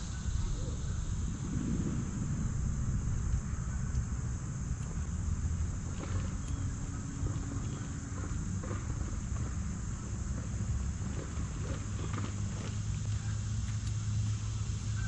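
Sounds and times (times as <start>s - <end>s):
high-pitched insect drone: 0.0s - 8.2s
wind on microphone: 0.0s - 12.4s.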